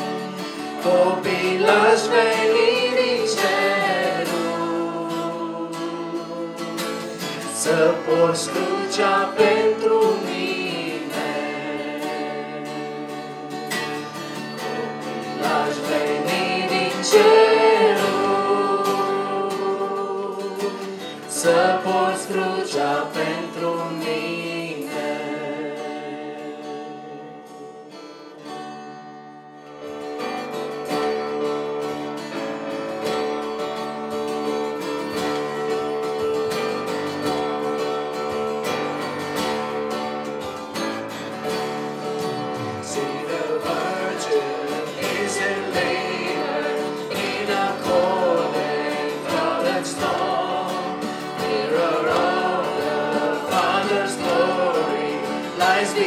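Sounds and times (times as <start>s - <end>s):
acoustic guitar: 0.0s - 56.0s
keyboard: 0.0s - 56.0s
woman singing: 0.9s - 6.5s.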